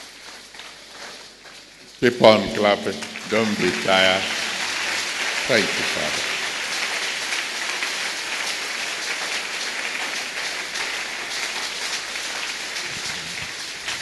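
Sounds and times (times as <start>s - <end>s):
crowd applauding: 2.2s - 14.0s.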